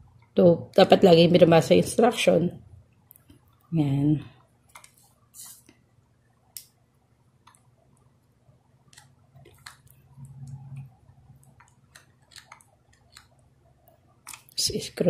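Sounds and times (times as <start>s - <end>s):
short low hum: 10.0s - 11.5s.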